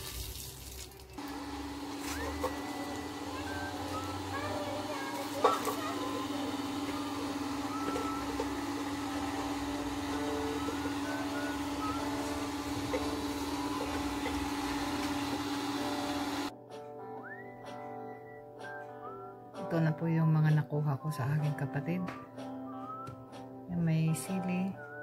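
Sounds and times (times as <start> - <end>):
steady motor hum: 1.2 - 16.5
strummed guitar music: 2.0 - 24.6.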